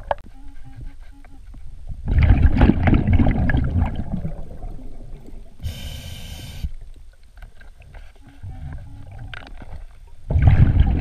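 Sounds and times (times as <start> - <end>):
exhaled bubbles rushing: 2.0 - 5.6, 10.3 - 11.0
hissing regulator inhale: 5.6 - 6.7.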